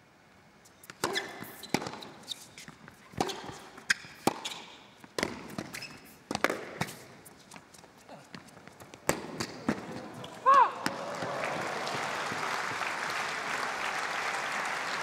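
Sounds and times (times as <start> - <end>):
tennis ball bouncing: 0.8 - 7.2, 8.4 - 11.0
shoe squeaks on court: 0.8 - 8.5
racket striking tennis ball: 0.9 - 2.2, 3.1 - 7.2, 9.0 - 11.0.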